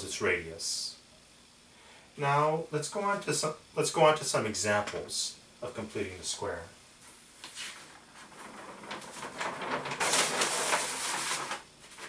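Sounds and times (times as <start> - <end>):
paper crackling: 7.4 - 12.0
paper sheet rustling: 7.4 - 12.0.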